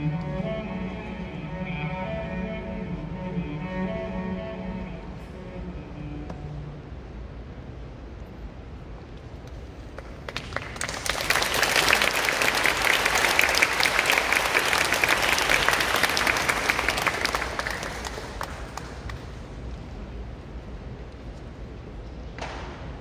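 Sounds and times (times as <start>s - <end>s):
audience applauding: 9.9s - 19.6s.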